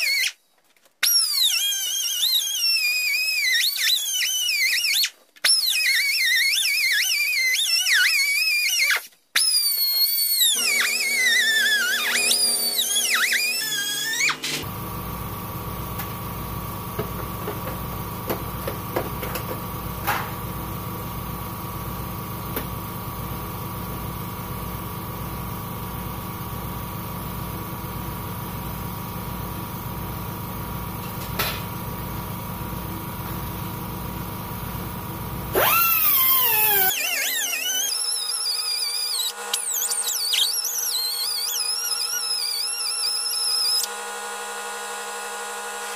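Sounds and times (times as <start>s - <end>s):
air cutting tool whine: 10.4s - 45.9s
air compressor running: 10.5s - 40.2s.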